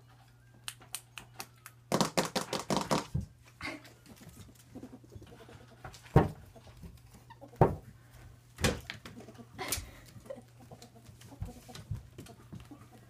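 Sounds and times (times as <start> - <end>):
ferrets clucking chuckles: 9.2 - 11.0.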